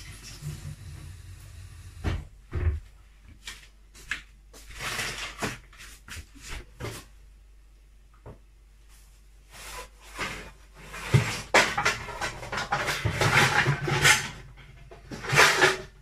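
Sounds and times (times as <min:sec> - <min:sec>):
kitchen knocks and clicks: 0:11.1 - 0:16.0.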